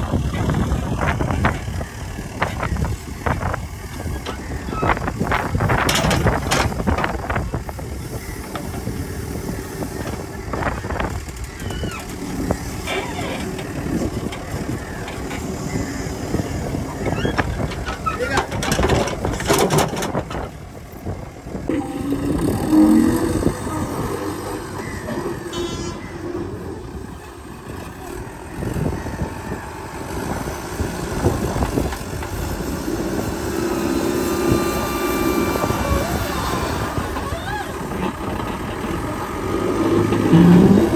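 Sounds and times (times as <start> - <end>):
diesel engine running: 0.0 - 40.9.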